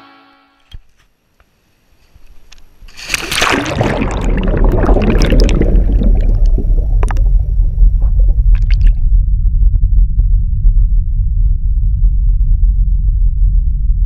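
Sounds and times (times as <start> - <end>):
underwater rumble and bubbling: 2.8 - 14.0
splashing into water: 2.9 - 9.0.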